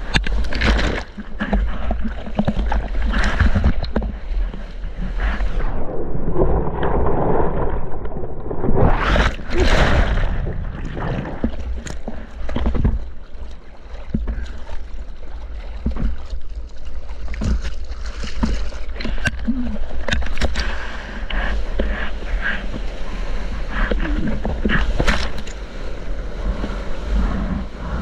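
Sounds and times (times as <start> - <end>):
water slapping a board: 0.0 - 4.7, 15.6 - 21.0
low rumble of moving water: 0.0 - 28.0
paddling splashes: 0.0 - 28.0
whitewater churning: 0.0 - 28.0.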